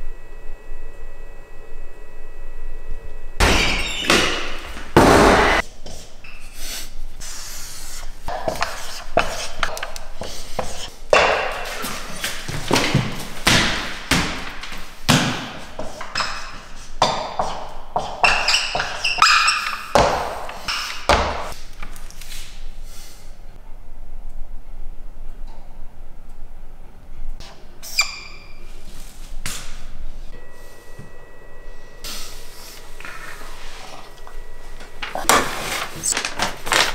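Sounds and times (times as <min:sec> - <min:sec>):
knocks and thuds: 0:03.4 - 0:05.6
marker pen writing on whiteboard: 0:08.3 - 0:10.9.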